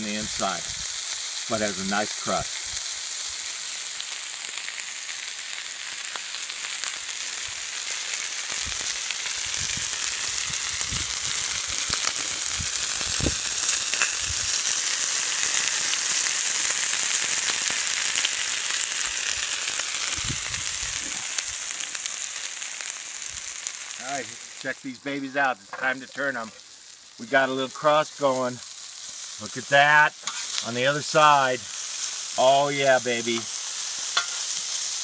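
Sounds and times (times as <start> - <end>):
meat sizzling on a griddle: 0.0 - 35.0.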